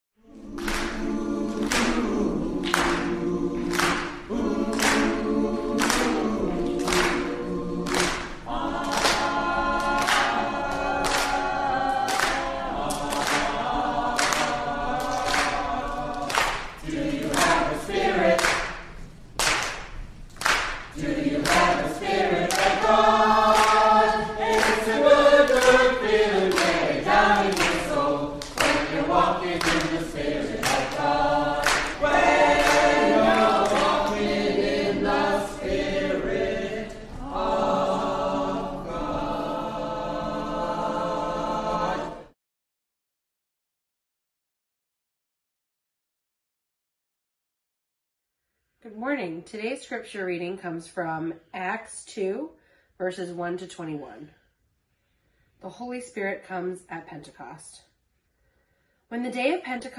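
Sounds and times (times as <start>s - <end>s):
choir singing: 0.2s - 18.9s, 20.9s - 42.4s.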